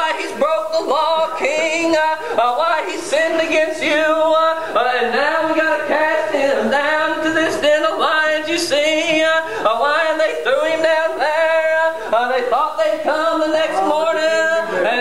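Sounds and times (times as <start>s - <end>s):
a cappella singing: 0.0s - 15.0s.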